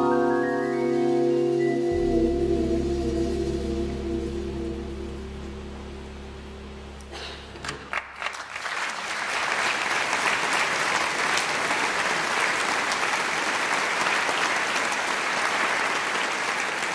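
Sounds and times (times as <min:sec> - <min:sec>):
band held notes: 0:00.0 - 0:08.0
audience applauding: 0:07.6 - 0:16.9.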